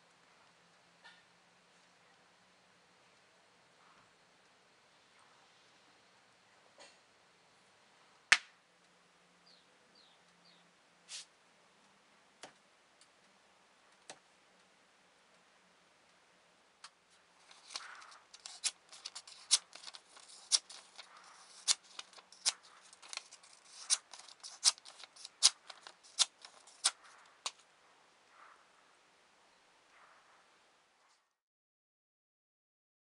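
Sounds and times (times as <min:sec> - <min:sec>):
knife slicing paper: 0:17.4 - 0:27.6
paper rustling: 0:17.4 - 0:27.6.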